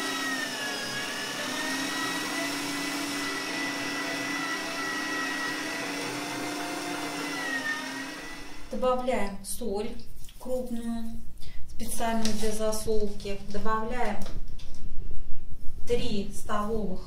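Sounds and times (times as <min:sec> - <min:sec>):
electric meat grinder motor whine: 0:00.0 - 0:08.8.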